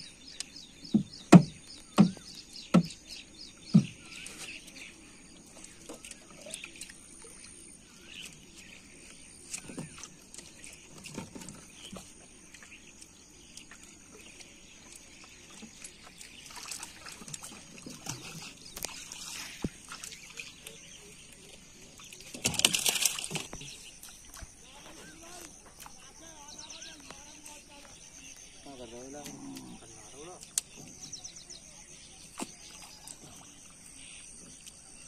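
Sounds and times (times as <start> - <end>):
bird chirps: 0.0 - 35.0
water trickling: 0.0 - 35.0
knocks on wooden boat: 0.8 - 4.0.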